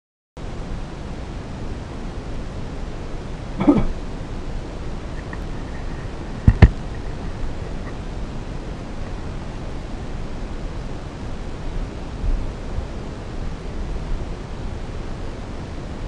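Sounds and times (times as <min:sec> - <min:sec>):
camera microphone hiss: 0:00.4 - 0:16.0
camera bumping knocks: 0:06.5 - 0:06.8.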